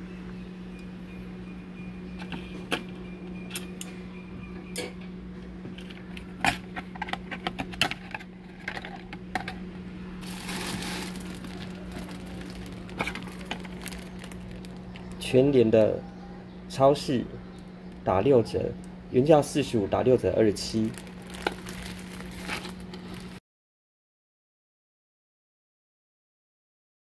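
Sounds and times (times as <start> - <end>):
steady low hum: 0.0 - 23.4
plastic bag rustling: 10.2 - 15.3, 20.5 - 23.4.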